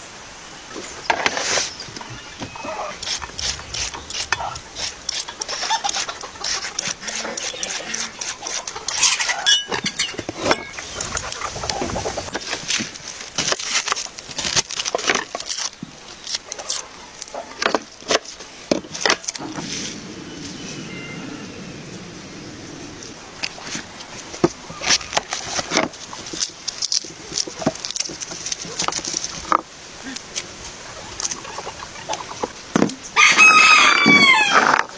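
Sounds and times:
outdoor background: 0.0 - 34.9
garlic skin crackling: 12.4 - 18.4.

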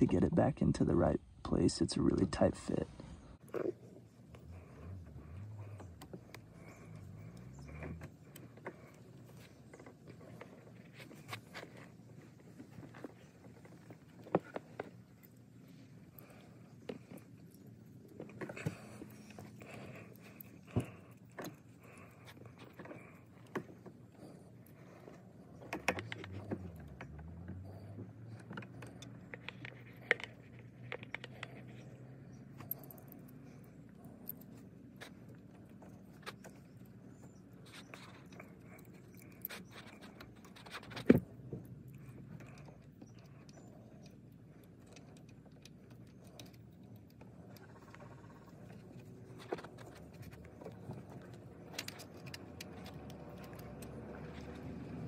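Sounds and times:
low engine hum: 0.0 - 55.0.

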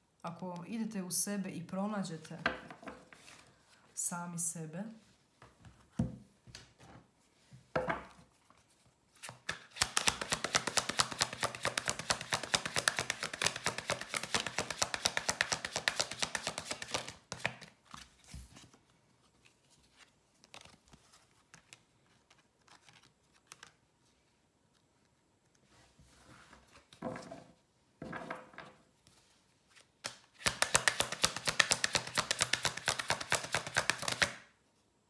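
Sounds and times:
cards being shuffled: 8.4 - 23.8, 29.1 - 34.4
cards tapped on table: 30.0 - 34.3.

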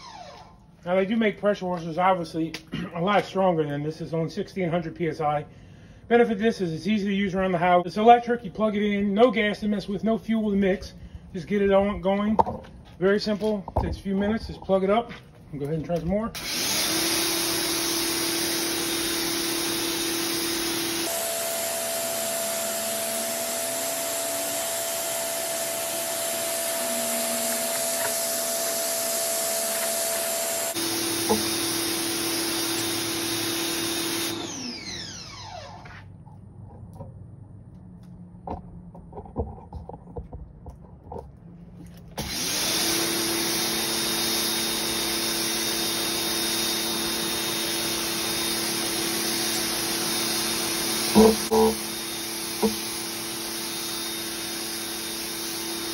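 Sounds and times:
pressure washer motor humming: 16.3 - 36.0, 42.2 - 55.9.

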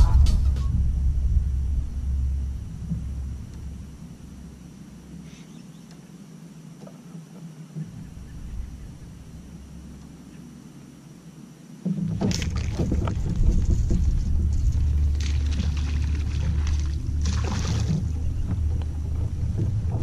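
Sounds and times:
wind rumble on microphone: 0.0 - 5.2, 7.8 - 10.5, 11.8 - 20.0
knocks and rustles on kayak hull: 11.8 - 20.0.

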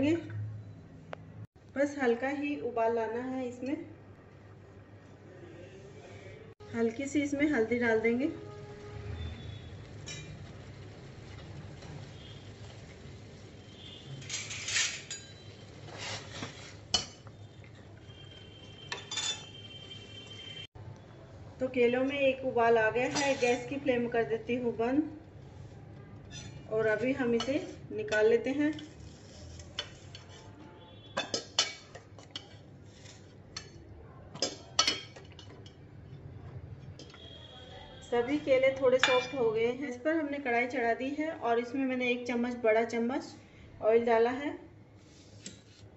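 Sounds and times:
metal spoon clinking on pot: 10.0 - 10.4, 14.3 - 15.5, 16.9 - 17.3, 18.9 - 19.6, 31.2 - 32.6, 33.6 - 35.8, 39.0 - 39.4
spoon scraping steel pot: 14.2 - 17.3, 23.1 - 23.8, 26.2 - 30.6
spoon clinking against pot: 18.9 - 19.6, 31.2 - 32.6.

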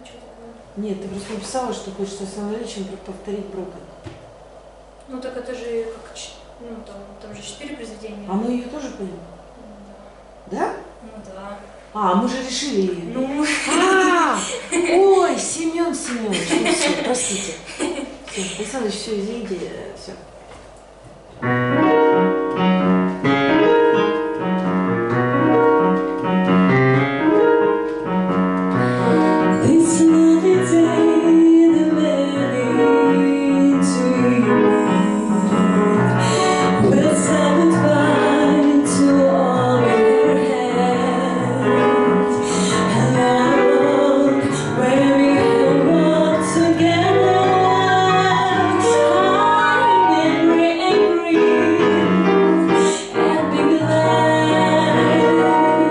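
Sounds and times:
digital piano chords: 21.4 - 55.9
woman singing into microphone: 29.3 - 55.9.

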